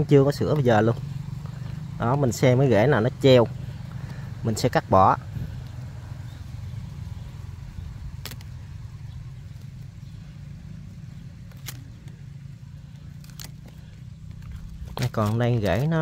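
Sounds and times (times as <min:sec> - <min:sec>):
low steady rumble: 0:00.0 - 0:16.0
pruning shears snipping: 0:08.1 - 0:08.7, 0:11.4 - 0:12.2, 0:12.8 - 0:16.0.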